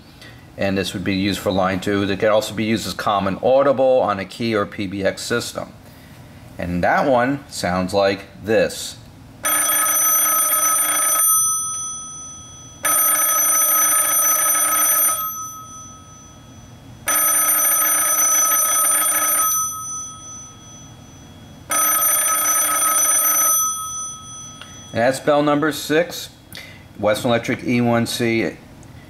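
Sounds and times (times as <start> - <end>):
telephone bell ringing: 9.4 - 25.7.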